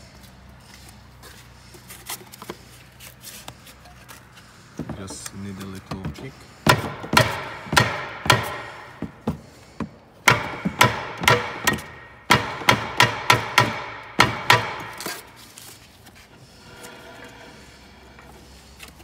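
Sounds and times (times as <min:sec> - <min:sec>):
hammer striking metal: 0:06.6 - 0:09.4, 0:10.2 - 0:15.4.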